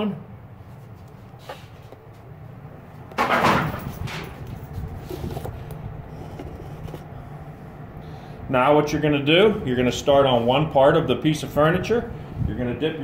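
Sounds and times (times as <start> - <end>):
low shop hum: 0.0 - 13.0
camera clunk and scrape: 1.4 - 2.0, 3.1 - 7.1.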